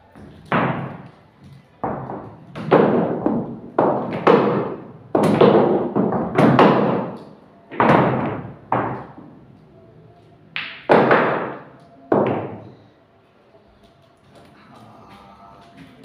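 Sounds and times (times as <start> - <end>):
pool balls knocking together: 0.2 - 1.1, 1.8 - 9.3, 10.6 - 12.6.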